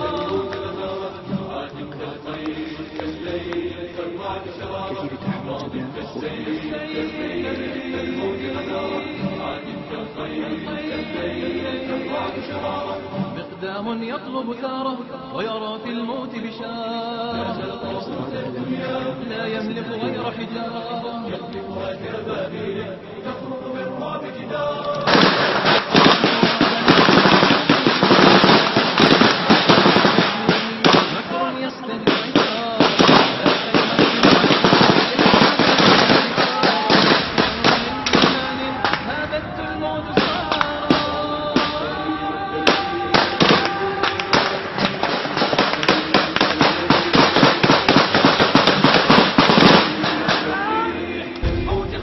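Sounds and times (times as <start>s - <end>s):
nasheed music with held notes: 0.0s - 52.0s
rapid automatic gunfire: 25.1s - 31.4s, 32.1s - 39.0s, 42.8s - 50.4s.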